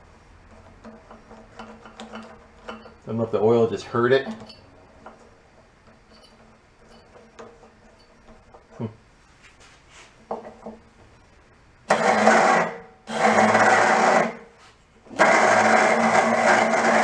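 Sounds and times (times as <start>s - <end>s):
electric starter motor whirring: 11.9s - 14.4s, 15.1s - 17.0s.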